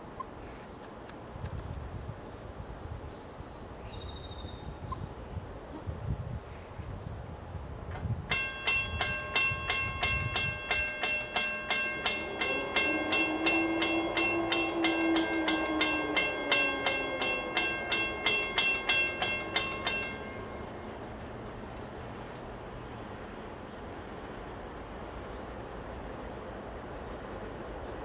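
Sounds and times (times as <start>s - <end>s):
crossing warning bell ringing: 8.3s - 21.4s
low drawn-out tone: 8.8s - 21.2s.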